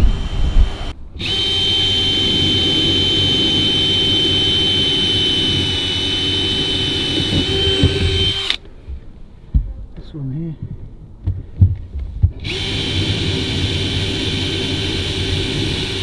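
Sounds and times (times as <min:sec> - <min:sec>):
power drill whining: 0:00.0 - 0:08.7, 0:12.4 - 0:16.0.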